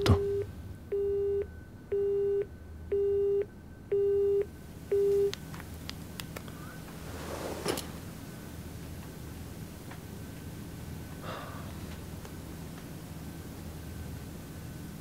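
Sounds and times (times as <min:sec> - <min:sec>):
telephone busy tone beeps: 0:00.0 - 0:05.3
short breath: 0:11.2 - 0:11.8.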